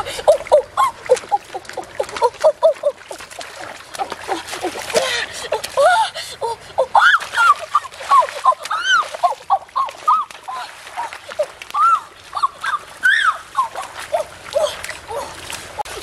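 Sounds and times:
water splashing in a stream: 0:00.0 - 0:16.0.

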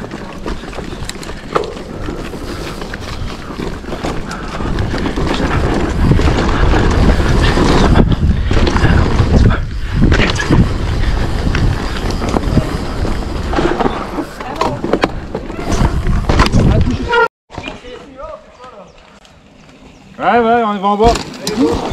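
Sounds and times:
wind buffeting microphone: 0:00.0 - 0:14.0, 0:15.1 - 0:17.1
bike tyre rumble: 0:00.0 - 0:17.2, 0:18.2 - 0:21.9
bike knocks and rattles: 0:00.0 - 0:17.8, 0:20.8 - 0:21.9.

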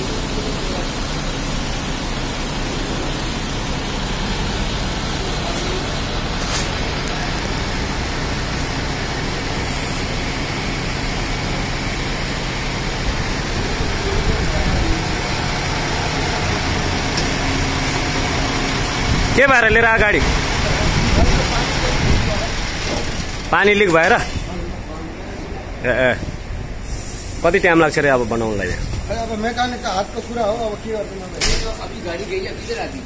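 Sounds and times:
truck diesel engine idling: 0:00.0 - 0:33.0.

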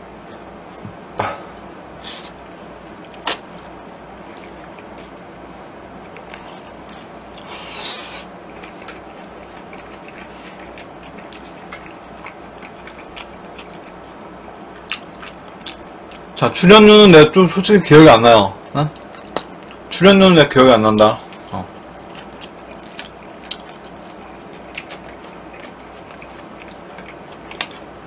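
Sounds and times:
person chewing noodles: 0:01.5 - 0:05.2, 0:06.0 - 0:16.3, 0:18.6 - 0:19.9, 0:21.2 - 0:28.0.

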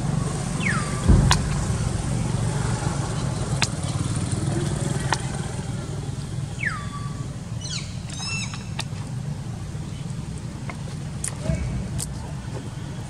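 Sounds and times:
engine rumbling: 0:00.0 - 0:13.0
whistle falling in pitch: 0:00.6 - 0:03.6.

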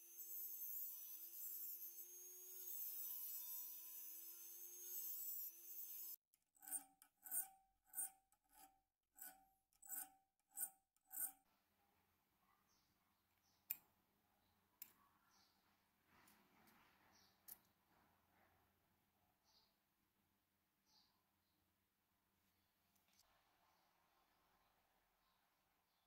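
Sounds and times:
rotary tool cutting metal: 0:00.0 - 0:11.4
file rasping on metal key: 0:04.8 - 0:11.4.

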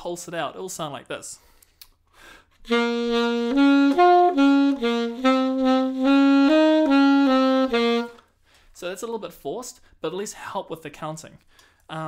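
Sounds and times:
alto saxophone playing: 0:02.6 - 0:08.3.

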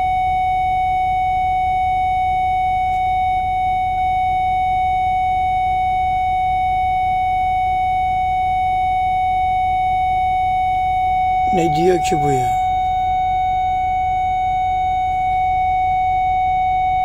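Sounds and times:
warning buzzer tone: 0:11.5 - 0:12.8.

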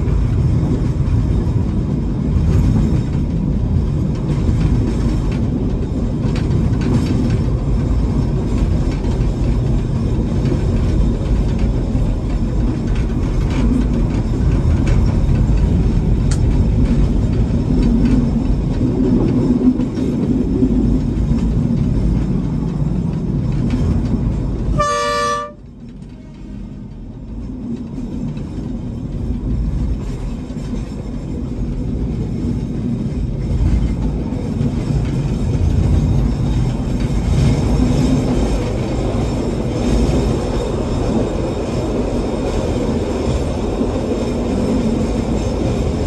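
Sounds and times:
train rumbling: 0:00.0 - 0:46.0
train horn toot: 0:24.7 - 0:26.3.

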